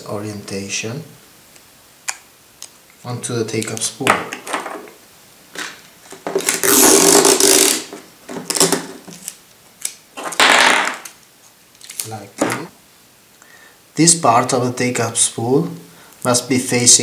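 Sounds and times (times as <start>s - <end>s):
tape ripping: 6.3s - 11.2s, 11.8s - 12.2s
adhesive tape pulled off roll: 6.4s - 10.0s.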